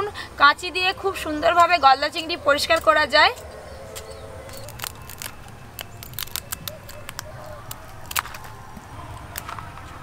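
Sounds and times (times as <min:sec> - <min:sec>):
scissors snipping shell: 0:02.7 - 0:08.6.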